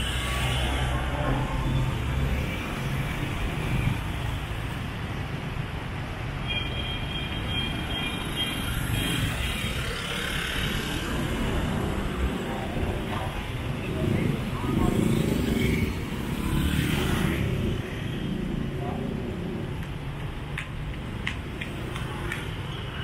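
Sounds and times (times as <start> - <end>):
passing vehicle engines: 8.8 - 23.0.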